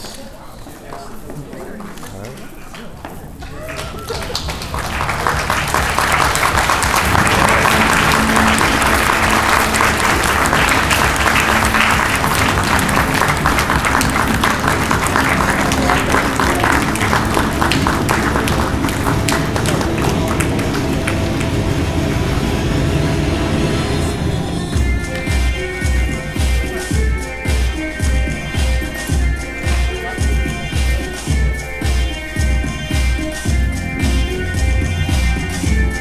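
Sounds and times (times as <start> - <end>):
audience applauding: 1.8 - 23.8.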